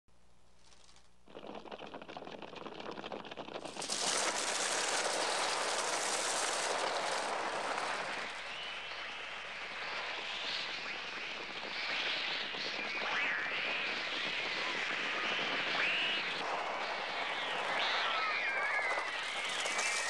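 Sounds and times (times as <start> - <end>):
bird wings flapping: 0.6 - 8.8, 18.6 - 20.0.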